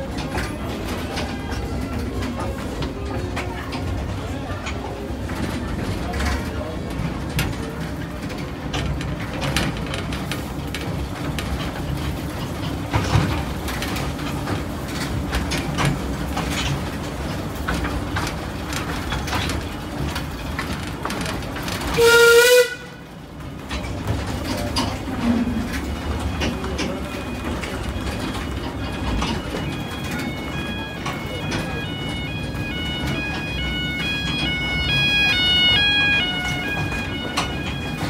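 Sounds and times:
steam train rumbling: 0.0 - 38.0
wheels clicking on track: 0.0 - 38.0
train whistle blast: 22.0 - 23.0.

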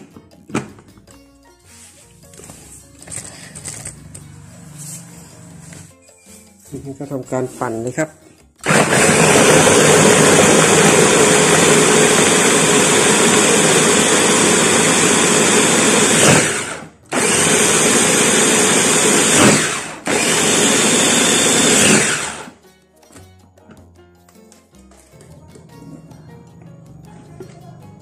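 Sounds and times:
electric food chopper running: 8.6 - 22.6.

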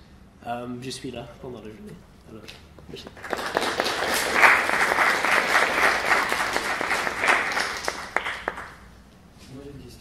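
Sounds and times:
audience applauding: 3.1 - 8.9.

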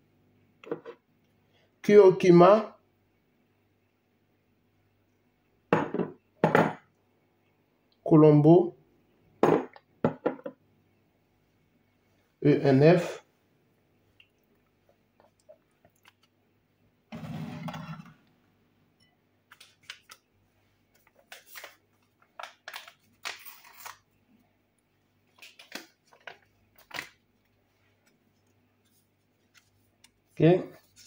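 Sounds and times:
objects handled on counter: 0.6 - 1.0.

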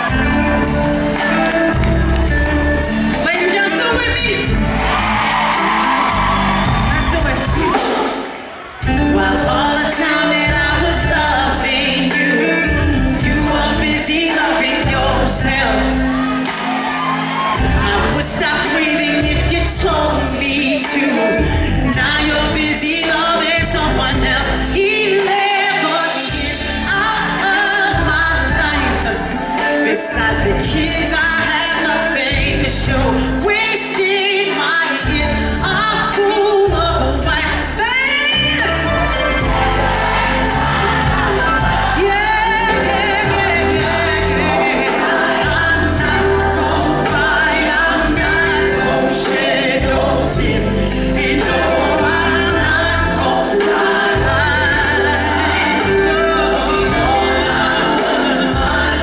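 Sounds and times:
bass guitar: 0.0 - 8.0, 8.8 - 20.8, 21.4 - 24.9, 26.3 - 33.6, 35.0 - 59.0
keyboards: 0.0 - 59.0
woman singing into microphone: 8.8 - 16.7, 17.6 - 39.1, 41.6 - 59.0.

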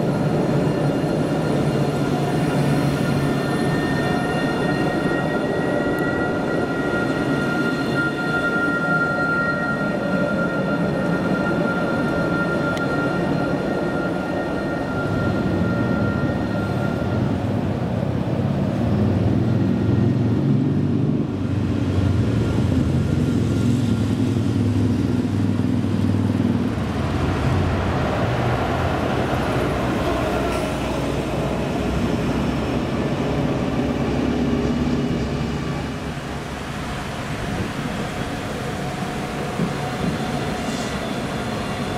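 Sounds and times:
tram electric whine: 0.0 - 41.9
tram wheels rumbling on rails: 0.0 - 41.9.

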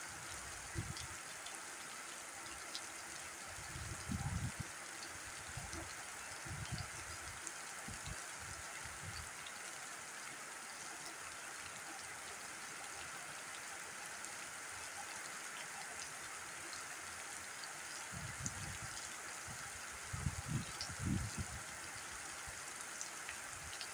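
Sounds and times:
rain falling on ground: 0.0 - 23.9.

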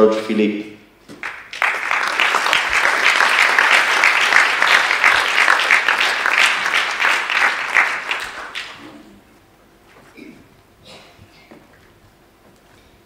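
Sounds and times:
audience applauding: 1.2 - 9.0.

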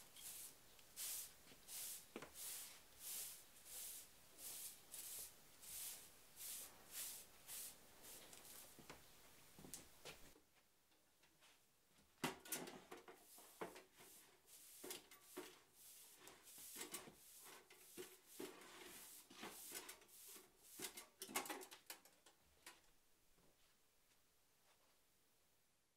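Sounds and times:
bristle swishes and scrapes: 0.0 - 8.8, 13.2 - 21.2
broom sweeping a wooden floor: 0.0 - 9.2, 12.5 - 21.7.

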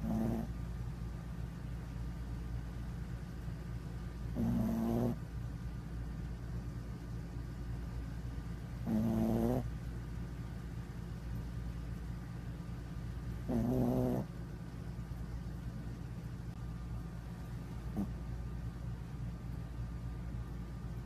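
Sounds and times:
small dog snoring: 0.0 - 0.6, 4.3 - 5.3, 8.8 - 9.8, 13.4 - 14.4, 17.9 - 18.2.

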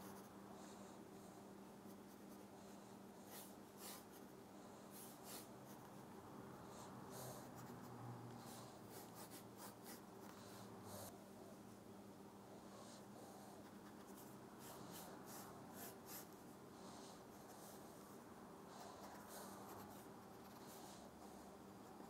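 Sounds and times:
pencil scratching on paper: 0.0 - 0.3, 3.2 - 4.3, 4.9 - 6.0, 7.4 - 10.4, 13.6 - 16.4, 18.8 - 21.1
steady low hum: 0.0 - 22.0.

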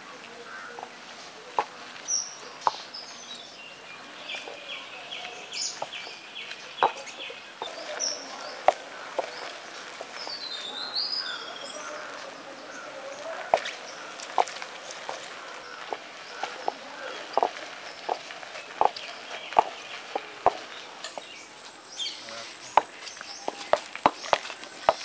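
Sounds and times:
birds chirping: 0.0 - 25.0.

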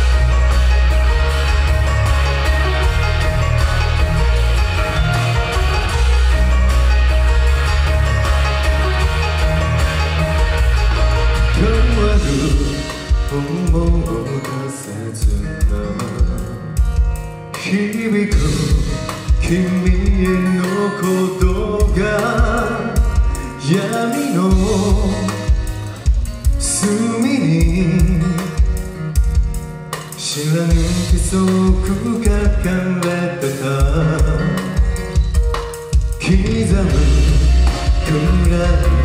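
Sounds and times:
amplified guitar: 0.0 - 39.0
drum kit beat: 0.0 - 39.0
man singing into a microphone: 11.4 - 25.6, 26.6 - 29.2, 30.1 - 35.4, 36.1 - 39.0.

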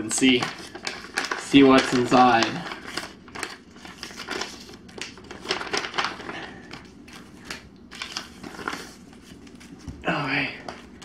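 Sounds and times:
paper envelope crinkling: 0.0 - 11.0.

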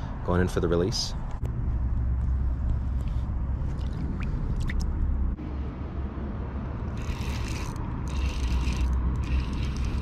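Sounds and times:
wind rumbling on microphone: 1.0 - 10.0
spinning reel whirring: 6.9 - 10.0.

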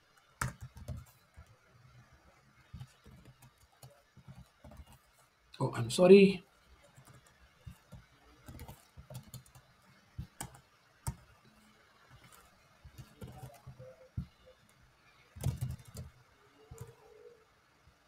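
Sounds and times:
typing on computer keyboard: 0.2 - 1.6, 2.6 - 5.1, 6.8 - 11.4, 12.1 - 14.4, 15.2 - 17.1.

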